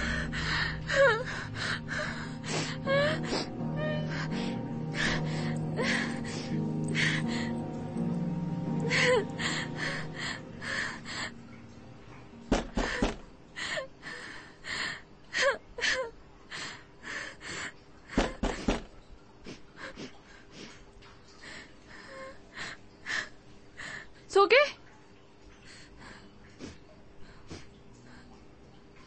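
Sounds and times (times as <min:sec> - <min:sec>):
woman whimpering: 0:00.0 - 0:07.7, 0:08.5 - 0:11.4
woman breathing hard: 0:00.0 - 0:11.6
dull knocks: 0:12.5 - 0:13.3.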